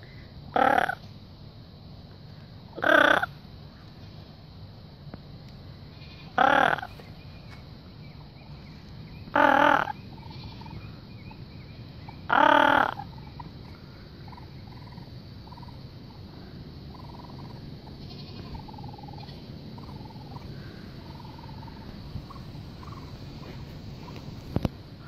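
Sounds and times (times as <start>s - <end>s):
baby raccoons trilling cries: 0.6s - 1.0s, 2.8s - 3.4s, 5.9s - 7.0s, 9.2s - 10.8s, 12.1s - 13.4s, 16.9s - 24.2s.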